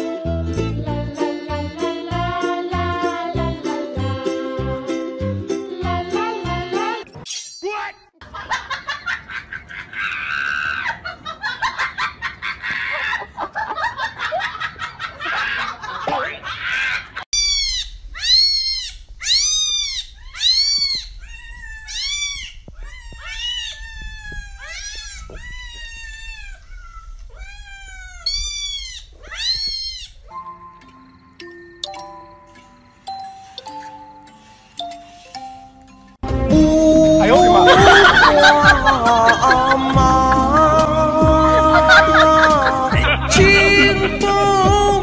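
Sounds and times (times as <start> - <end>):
cats meowing: 16.7 - 30.4.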